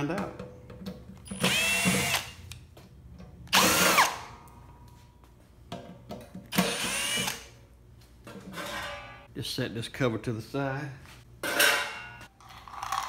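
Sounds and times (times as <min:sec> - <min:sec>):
cordless drill motor whine: 0:01.3 - 0:02.3, 0:06.6 - 0:07.5.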